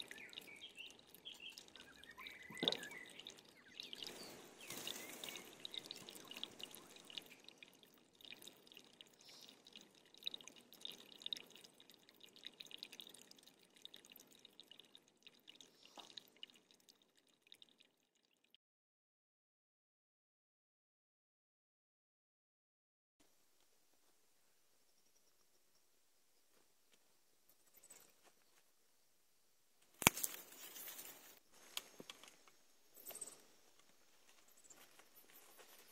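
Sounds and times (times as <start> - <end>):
water dripping: 0.0 - 18.6, 29.8 - 35.9.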